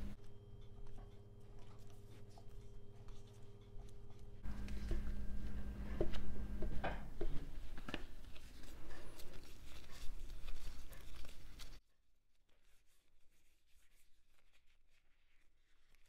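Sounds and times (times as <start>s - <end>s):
steady low hum: 0.0s - 9.4s
disposable gloves rustling: 0.0s - 11.8s, 12.4s - 16.0s.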